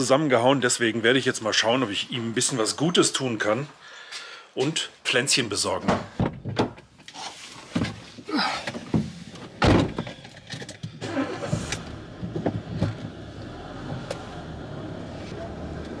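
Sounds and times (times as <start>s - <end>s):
rustling and seat noises: 6.7s - 14.4s
car engine starting and idling: 10.0s - 16.0s
car door shutting: 11.0s - 14.5s.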